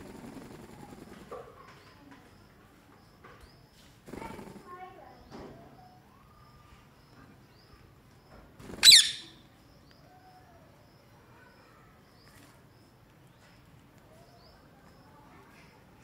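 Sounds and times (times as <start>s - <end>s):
faint high chirps: 5.2s - 15.8s
parakeet shrill screech: 8.8s - 9.4s.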